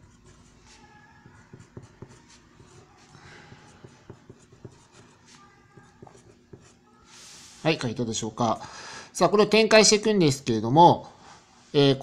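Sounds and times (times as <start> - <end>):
pencil scratching on paper: 0.0 - 7.6.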